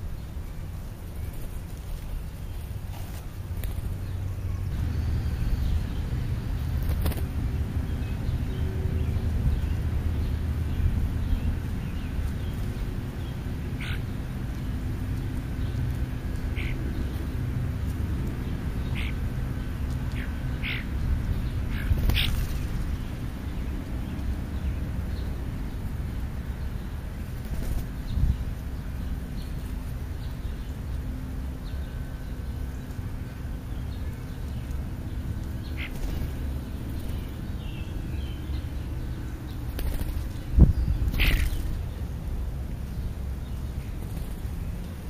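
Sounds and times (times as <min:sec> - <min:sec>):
steady low rumble: 0:00.0 - 0:45.0
flutter of wings: 0:01.1 - 0:04.0, 0:06.6 - 0:07.4, 0:21.7 - 0:23.0, 0:27.2 - 0:28.2, 0:35.8 - 0:37.4, 0:39.6 - 0:41.9, 0:43.9 - 0:45.0
short sharp bird calls: 0:41.1 - 0:41.7.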